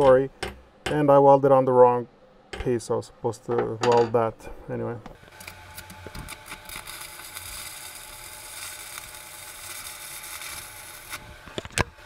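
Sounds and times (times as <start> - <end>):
welding arc crackling: 5.2 - 12.0.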